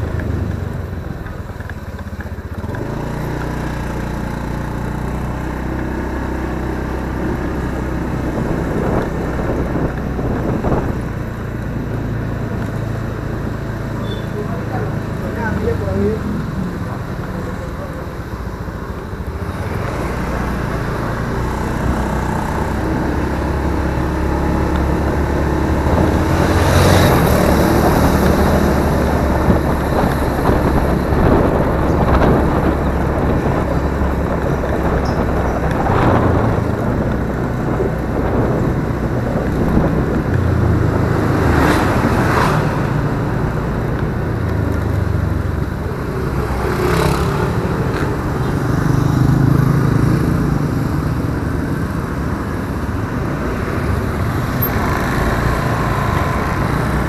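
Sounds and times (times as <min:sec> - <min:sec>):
road and wind noise: 0:00.0 - 0:57.0
scooter engine humming: 0:00.0 - 0:57.0.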